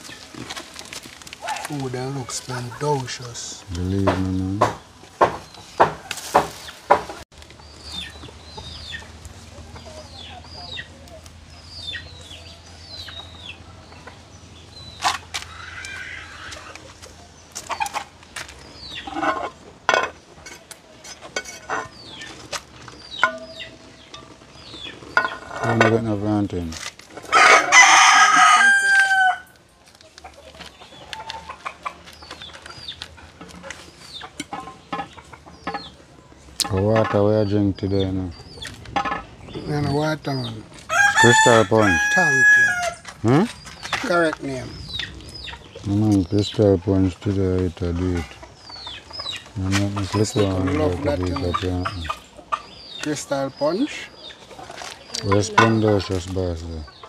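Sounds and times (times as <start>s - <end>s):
chickens clucking: 0.0s - 57.0s
rooster crowing: 27.3s - 29.6s, 40.9s - 43.1s.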